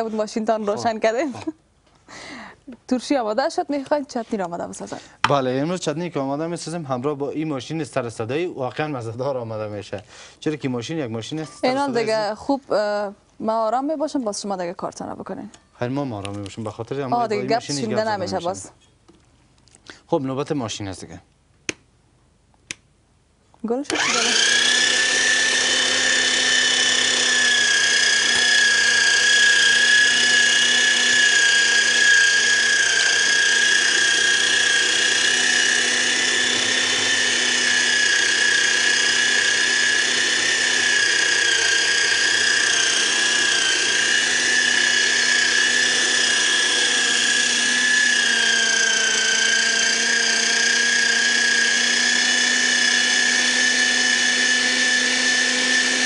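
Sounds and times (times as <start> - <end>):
meat grinder motor whining: 23.9 - 56.0.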